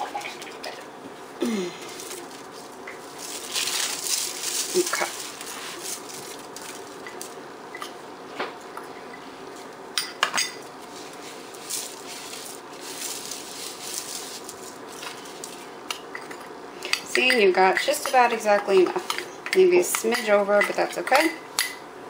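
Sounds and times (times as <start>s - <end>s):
aluminium foil crinkling: 1.8s - 7.4s, 10.6s - 16.3s.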